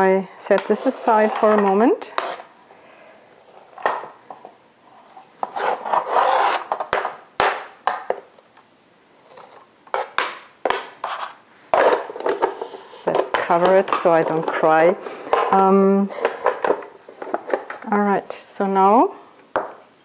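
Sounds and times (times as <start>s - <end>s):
knife scraping cutting board: 1.2s - 2.5s, 5.4s - 7.0s, 11.0s - 11.4s.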